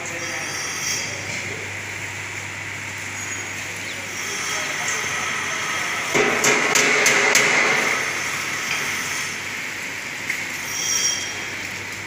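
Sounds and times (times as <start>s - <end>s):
band saw hissing and whining: 0.0s - 1.6s, 3.1s - 6.2s, 7.8s - 9.6s, 10.6s - 11.6s.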